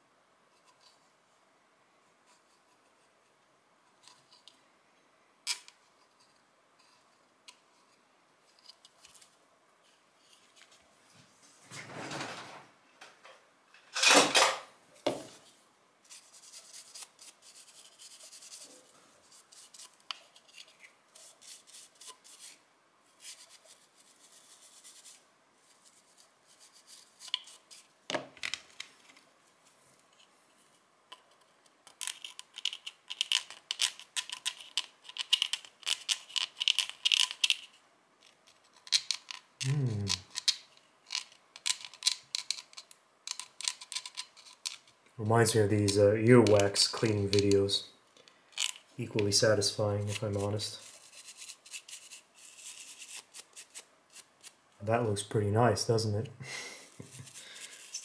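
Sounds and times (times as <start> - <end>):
stiff brush scrubbing: 49.2 - 54.5.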